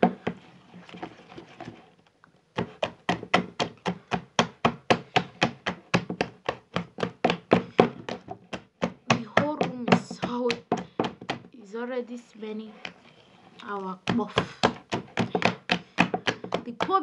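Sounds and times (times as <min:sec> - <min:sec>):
hand slapping wet batter: 0:02.5 - 0:11.5, 0:13.6 - 0:17.0.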